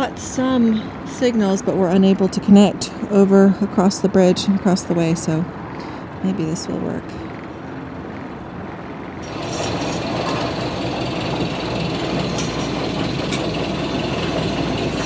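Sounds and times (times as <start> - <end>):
boat diesel engine running: 9.2 - 15.0.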